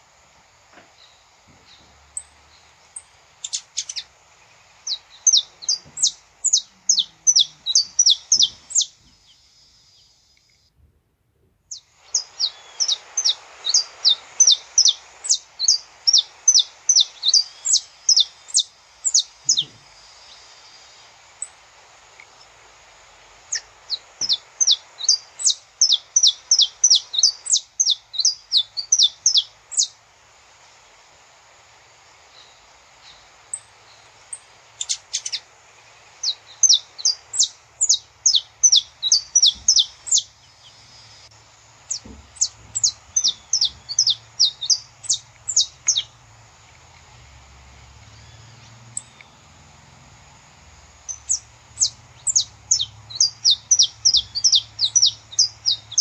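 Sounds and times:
finch chirping: 0:03.4 - 0:04.1, 0:04.8 - 0:09.0, 0:11.7 - 0:20.5, 0:23.5 - 0:29.9, 0:34.3 - 0:35.4, 0:36.2 - 0:40.8, 0:41.9 - 0:46.2, 0:51.0 - 0:56.0.

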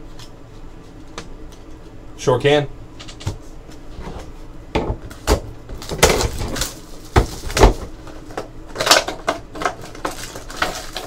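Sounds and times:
packs rustling: 0:09.6 - 0:11.0.

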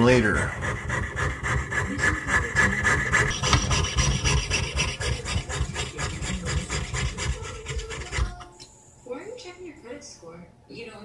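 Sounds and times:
saw blade rasping through metal coin: 0:00.9 - 0:08.2.

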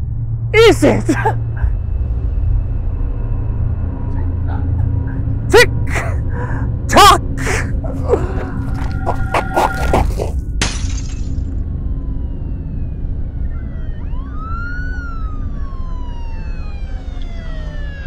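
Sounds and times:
steady low drone: 0:00.0 - 0:16.9
siren wailing: 0:07.9 - 0:10.4, 0:11.5 - 0:18.0.

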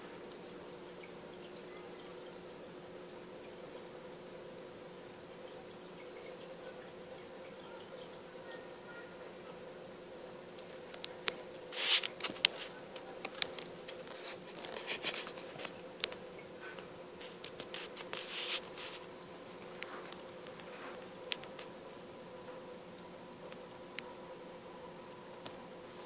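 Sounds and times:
aquarium equipment humming: 0:00.0 - 0:26.0
short crackling bursts: 0:10.5 - 0:22.0.

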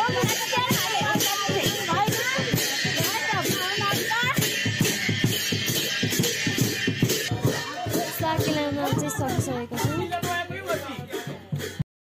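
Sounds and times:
music with quick steady beat: 0:00.0 - 0:11.8.

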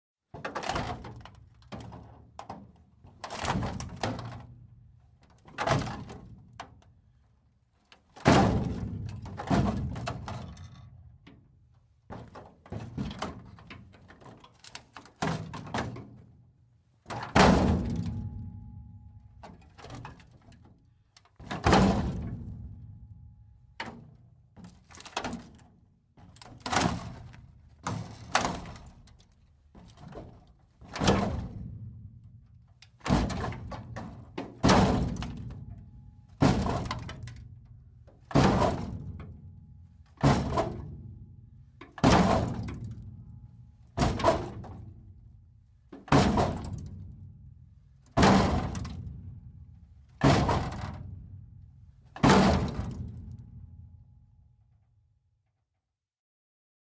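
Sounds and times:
metal crashing and crunching: 0:17.3 - 0:20.6, 0:33.0 - 0:35.7, 0:41.9 - 0:43.0, 0:48.2 - 0:49.1, 0:50.2 - 0:51.1, 0:52.1 - 0:53.3.

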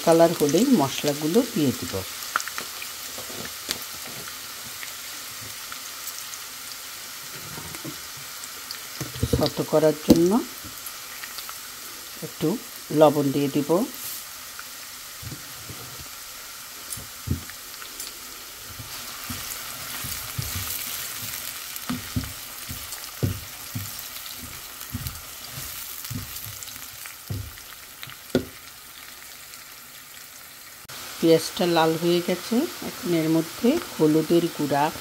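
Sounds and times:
onion sizzling in hot oil: 0:00.0 - 0:35.0
spatula knocking and scraping pan: 0:18.6 - 0:28.6.

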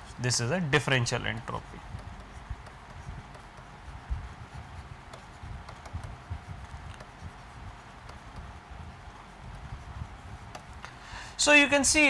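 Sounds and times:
stylus tapping on a tablet: 0:01.4 - 0:10.9.

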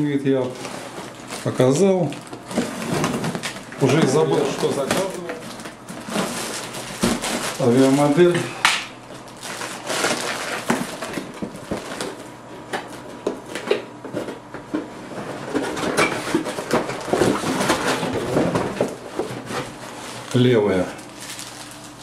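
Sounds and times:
plastic packing crinkling: 0:00.0 - 0:13.6, 0:15.4 - 0:22.0.

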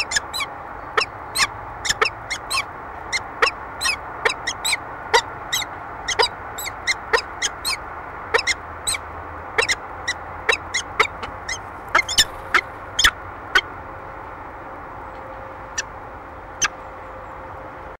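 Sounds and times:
falcon chipping calls: 0:00.0 - 0:09.0, 0:09.6 - 0:13.7
low steady hum: 0:00.0 - 0:17.9.

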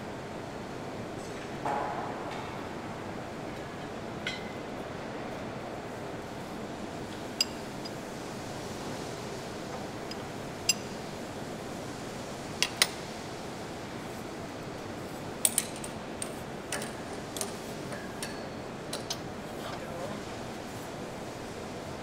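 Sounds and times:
workshop hall hum: 0:00.0 - 0:22.0.

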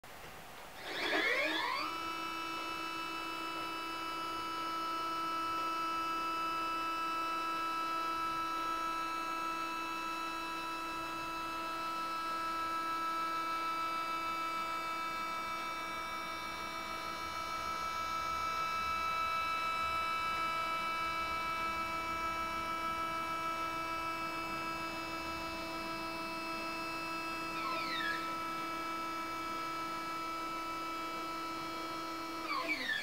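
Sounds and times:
stepper motors whining: 0:00.8 - 0:05.8, 0:27.4 - 0:28.5, 0:32.4 - 0:33.0.

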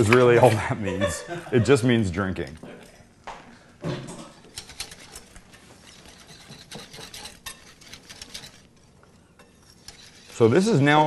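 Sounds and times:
wire whisk scraping in bowl: 0:04.3 - 0:11.0.

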